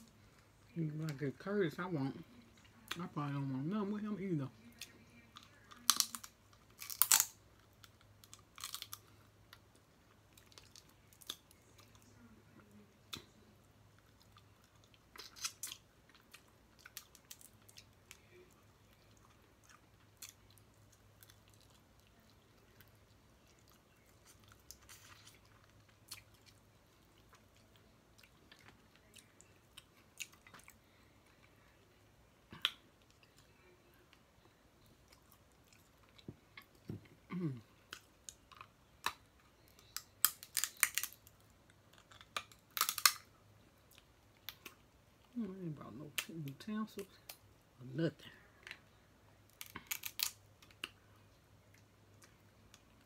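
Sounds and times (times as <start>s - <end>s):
quiet chewing: 4.6s - 45.4s, 48.5s - 53.0s
crab shells cracking: 5.5s - 9.7s, 15.2s - 18.2s, 37.9s - 43.3s, 49.5s - 51.0s.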